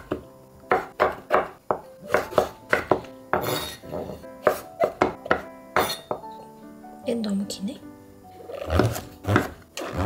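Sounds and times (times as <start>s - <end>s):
light background music: 0.0s - 10.0s.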